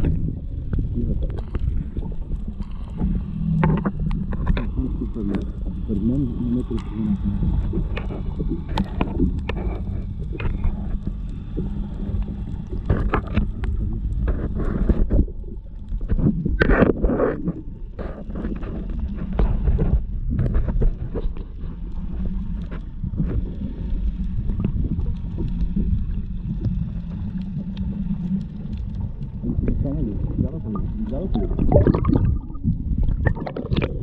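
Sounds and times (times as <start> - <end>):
clicks and crackles: 0.0 - 34.0
underwater rumble of water: 0.0 - 34.0
water sloshing: 30.7 - 34.0.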